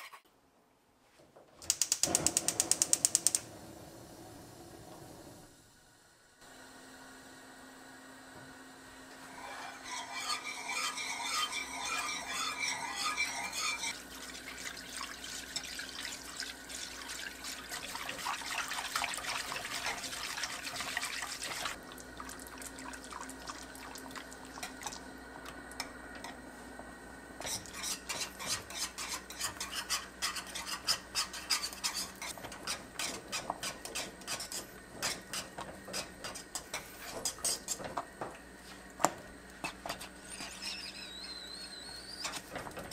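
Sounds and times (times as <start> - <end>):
metal whisk clicking against pan: 1.7 - 3.3.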